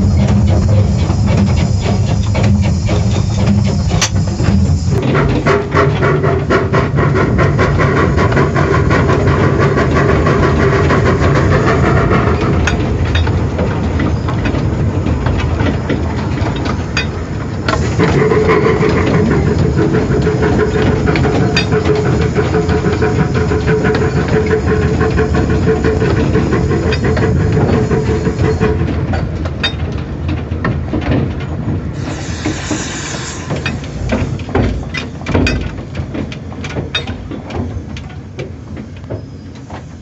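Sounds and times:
steam hiss: 0.0s - 5.6s, 17.6s - 28.9s, 31.9s - 35.2s
steam locomotive running: 0.0s - 40.0s
wheels rattling and clicking: 0.0s - 40.0s.

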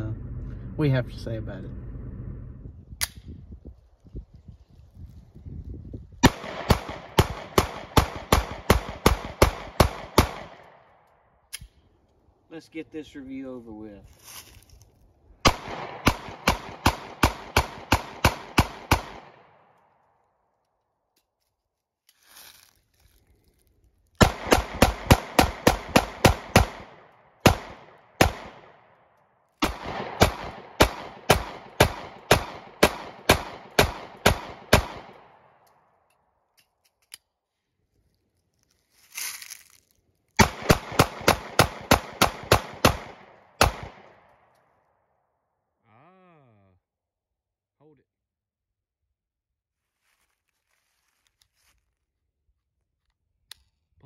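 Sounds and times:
pistol gunshots: 6.2s - 10.9s, 15.4s - 19.7s, 24.2s - 29.0s, 29.6s - 35.6s, 40.4s - 44.3s.

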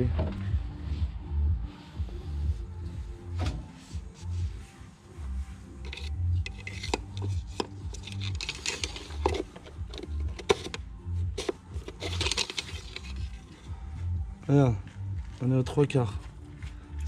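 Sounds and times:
background music with low bass: 0.0s - 17.0s
dipstick rubbing and scraping: 5.6s - 14.0s.

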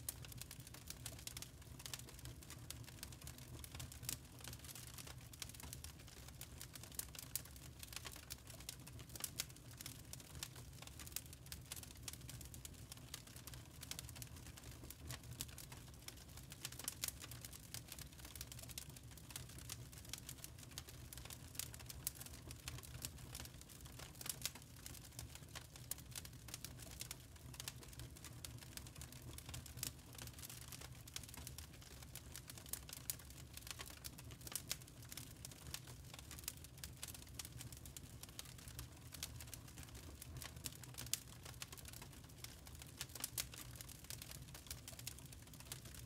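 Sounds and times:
charcoal crackling and popping: 0.1s - 46.0s.

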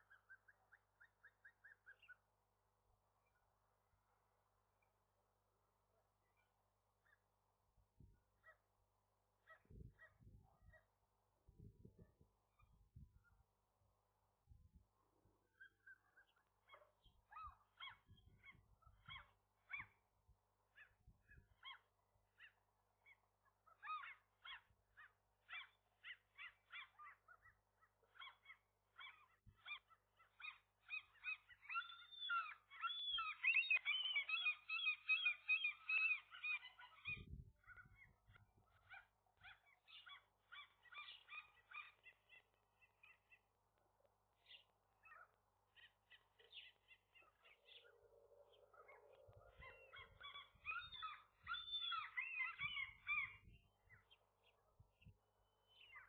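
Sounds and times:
gulls calling: 28.2s - 38.1s, 44.4s - 53.6s.

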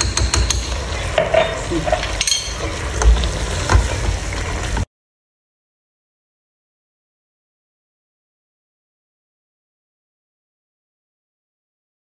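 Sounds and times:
spatula knocking against pot: 0.0s - 3.9s
food sizzling in a pot: 0.0s - 4.9s.

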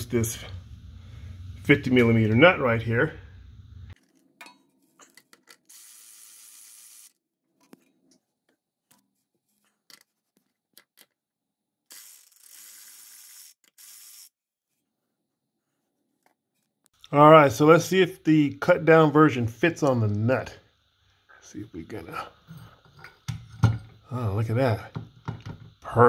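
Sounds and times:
electric ratchet spinning: 5.6s - 7.2s, 11.9s - 14.4s.

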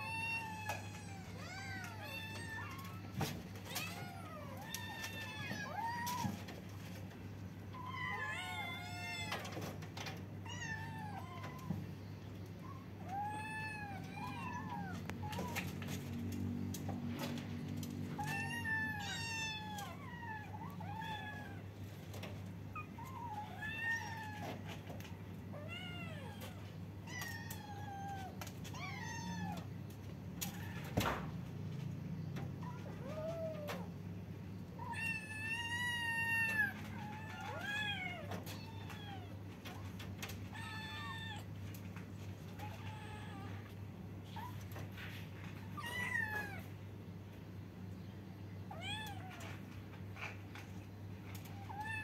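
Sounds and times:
kittens meowing: 0.0s - 6.5s, 7.7s - 9.7s, 12.6s - 16.2s, 18.0s - 21.8s, 22.7s - 29.8s, 34.7s - 39.4s, 45.6s - 46.7s.

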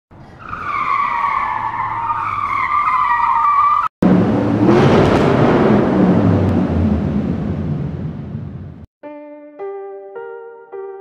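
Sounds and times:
car tire screech: 0.2s - 3.9s
whooshing rush with low rumble: 4.0s - 8.9s.

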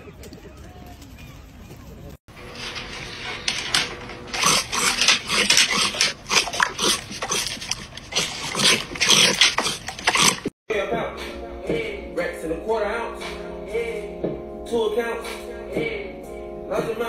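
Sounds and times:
dog crunching and chewing: 2.3s - 10.5s.

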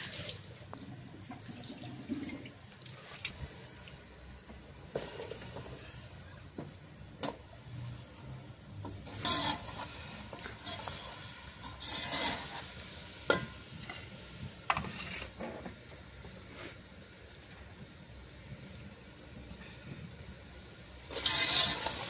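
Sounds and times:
light sizzling: 0.0s - 22.0s
metal skimmer scraping steel pot: 9.1s - 9.8s, 10.4s - 12.6s, 21.1s - 22.0s.

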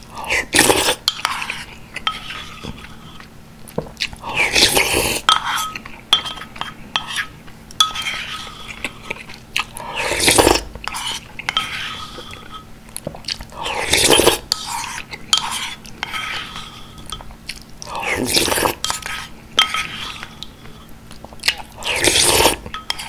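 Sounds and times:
spoon scraping ceramic bowl: 0.8s - 3.3s, 4.4s - 9.4s, 10.0s - 12.7s, 13.7s - 17.3s, 18.0s - 20.9s, 21.8s - 23.0s.

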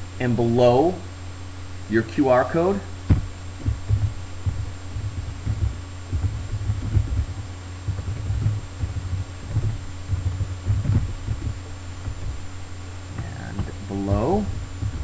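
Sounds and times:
low electrical hum: 0.0s - 15.0s.

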